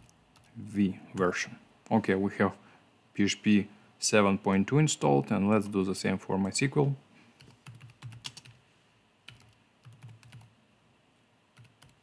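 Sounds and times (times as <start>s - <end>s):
keyboard keys clicking: 7.4s - 8.6s, 9.3s - 10.5s.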